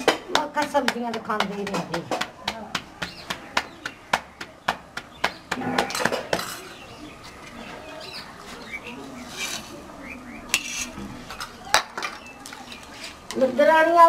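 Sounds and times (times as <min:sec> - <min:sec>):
dough slapped between palms: 0:00.0 - 0:05.6
birds chirping: 0:00.0 - 0:14.0.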